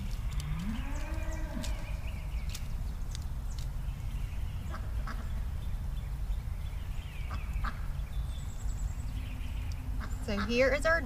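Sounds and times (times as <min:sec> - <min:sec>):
light clicks of soil handling: 0:00.0 - 0:04.3
ducks quacking: 0:04.7 - 0:05.4, 0:10.0 - 0:10.9.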